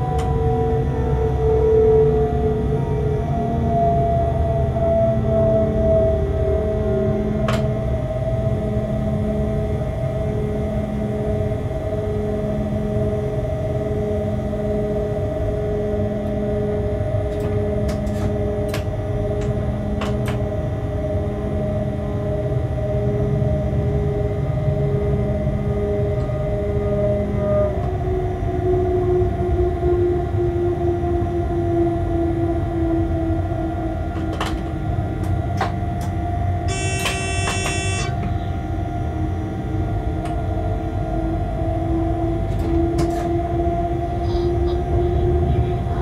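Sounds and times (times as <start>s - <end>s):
locomotive cab rumble and hum: 0.0s - 46.0s
high-pitched horn tone: 36.7s - 38.5s.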